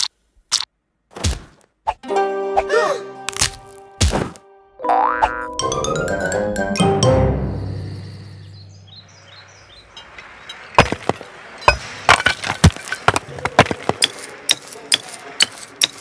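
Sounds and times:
hammers striking rock: 10.4s - 16.0s.

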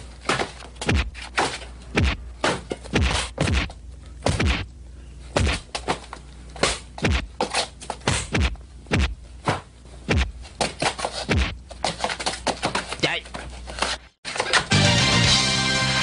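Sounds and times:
punches and kicks landing: 0.2s - 4.7s, 5.3s - 12.8s.

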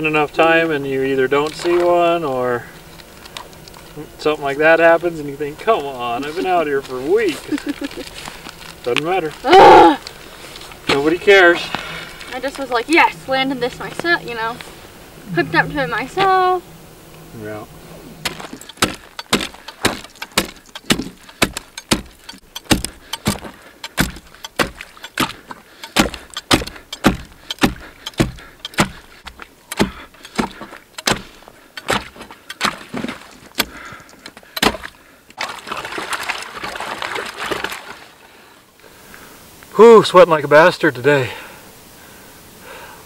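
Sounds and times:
ice chisel strikes: 18.2s - 33.8s, 34.6s - 35.0s.

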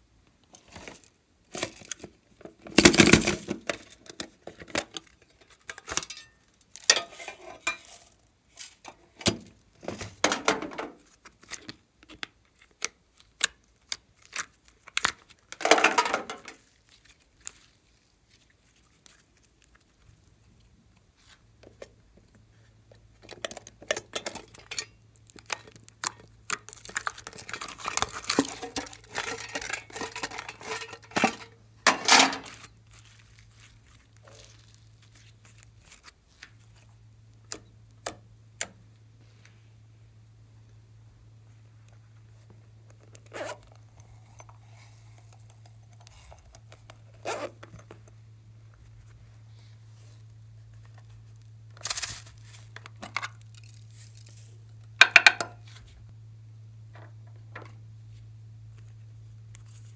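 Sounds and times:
plastic containers clicking and crinkling: 0.4s - 8.0s, 8.7s - 17.8s, 21.6s - 38.8s
sticky slime crackles: 11.0s - 15.6s, 16.6s - 21.5s, 25.0s - 29.2s, 32.5s - 38.0s.

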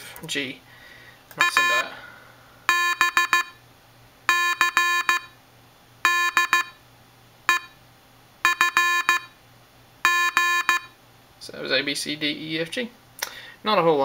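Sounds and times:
morse code beeps: 1.4s - 1.9s, 2.7s - 3.6s, 4.3s - 5.4s, 6.0s - 6.8s, 7.5s - 7.8s, 8.4s - 9.4s, 10.0s - 11.0s.

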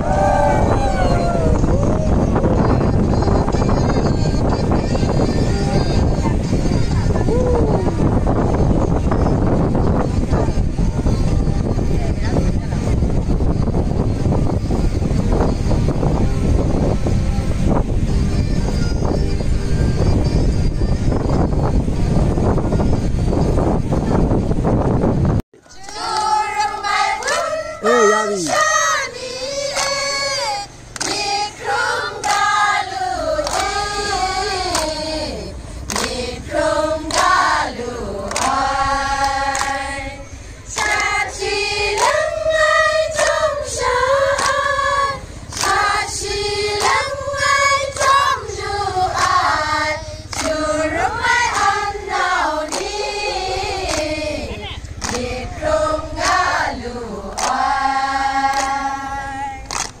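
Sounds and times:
women singing in unison: 25.6s - 60.0s
hand claps: 29.7s - 30.0s, 30.9s - 31.4s, 32.2s - 32.6s, 33.4s - 33.8s, 34.6s - 35.0s, 35.8s - 36.2s, 37.0s - 37.7s, 38.3s - 39.9s, 40.7s - 41.3s, 41.9s - 43.5s, 44.2s - 44.7s, 45.5s - 48.4s, 49.2s - 54.2s, 54.8s - 59.0s, 59.6s - 60.0s.

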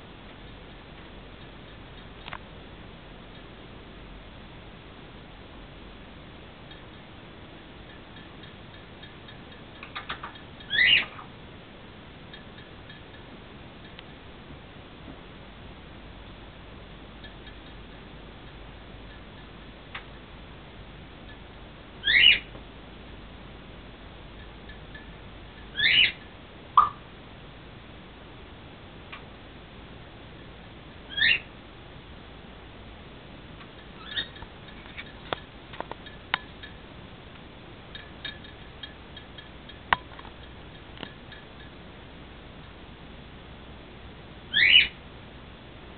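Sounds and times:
parrot squawk: 10.7s - 11.3s, 22.0s - 22.5s, 25.8s - 26.2s, 31.1s - 31.5s, 44.5s - 45.0s.

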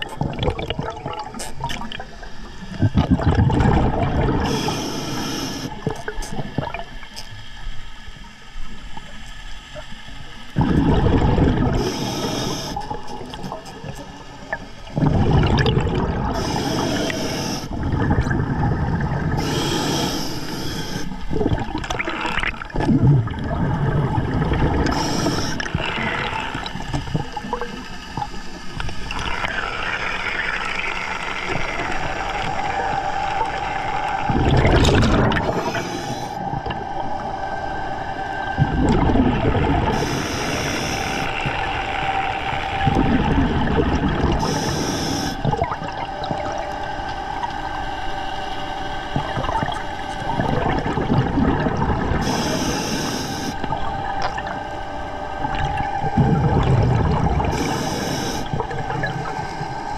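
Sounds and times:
exhaled bubbles rumbling: 0.0s - 7.2s, 10.5s - 20.0s, 21.0s - 59.9s
regulator inhalation hiss: 4.4s - 5.8s, 11.7s - 14.5s, 16.3s - 17.8s, 19.3s - 21.2s, 24.9s - 25.7s, 35.4s - 36.4s, 39.9s - 41.6s, 44.3s - 45.6s, 52.2s - 53.7s, 57.5s - 58.6s.

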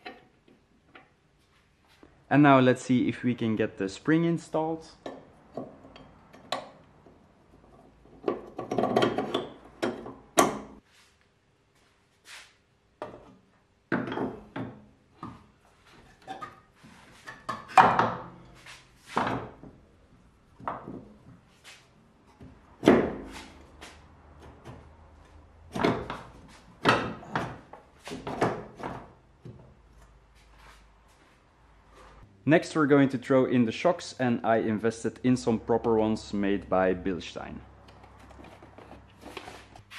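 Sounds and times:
metal suspension parts clunking: 4.9s - 10.8s, 13.1s - 19.9s, 22.2s - 30.7s.

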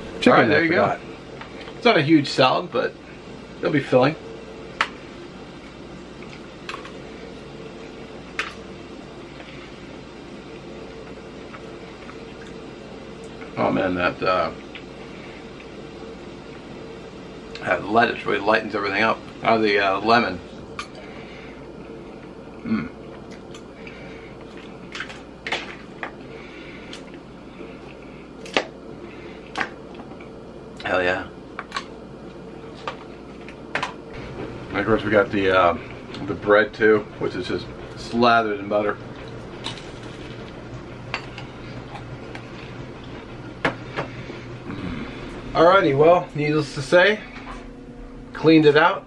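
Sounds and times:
low room hum: 0.0s - 49.0s
man eating bread: 44.1s - 45.5s.

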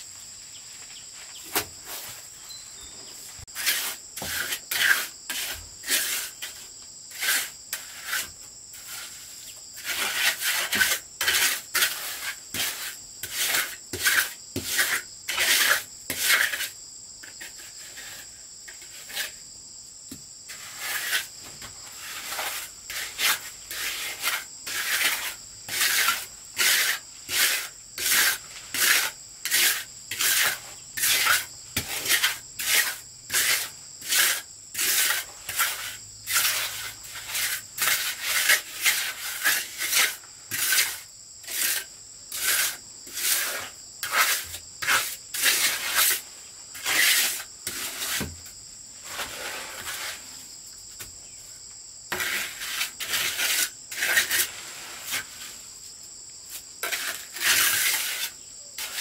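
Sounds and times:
insects trilling: 0.0s - 59.0s
hand tool rasping strokes: 3.5s - 16.7s, 20.5s - 46.2s, 46.8s - 48.3s, 52.1s - 55.4s, 56.8s - 59.0s.

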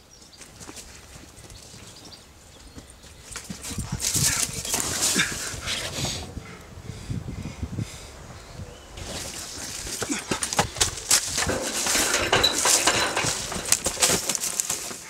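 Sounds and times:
dry leaves and brush rustling: 0.2s - 6.3s, 9.0s - 15.0s.

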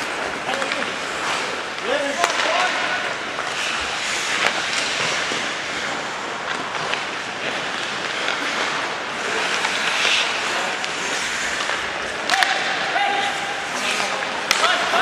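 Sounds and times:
skates carving ice: 0.0s - 15.0s.

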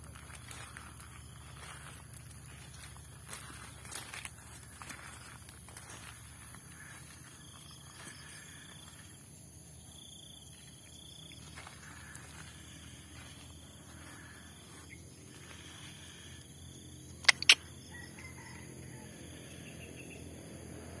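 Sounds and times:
insects buzzing and chirping: 0.0s - 21.0s
sharp clicks: 17.2s - 17.6s.

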